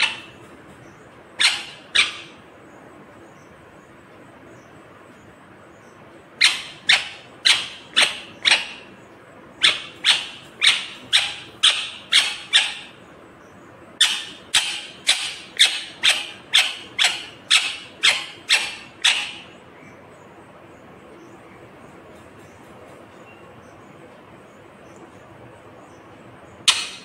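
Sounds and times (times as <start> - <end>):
parakeet screeching: 0.0 - 0.4, 1.4 - 2.4, 6.4 - 8.9, 9.6 - 13.0, 14.0 - 19.6.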